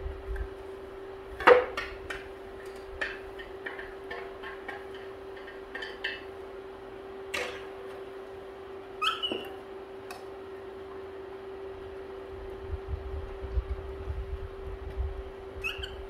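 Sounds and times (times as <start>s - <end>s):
steady hum: 0.0s - 16.0s
monkey squeak: 9.0s - 9.5s, 15.6s - 16.0s.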